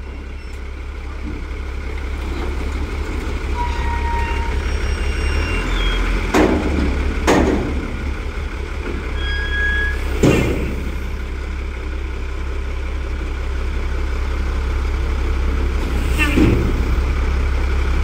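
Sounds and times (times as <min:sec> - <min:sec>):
diesel engine idling: 0:00.0 - 0:18.0
sharp knocks: 0:06.3 - 0:07.9.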